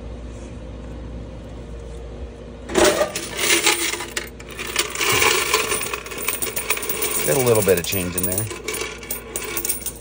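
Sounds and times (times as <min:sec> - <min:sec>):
coins clattering in metal box: 0:02.7 - 0:10.0.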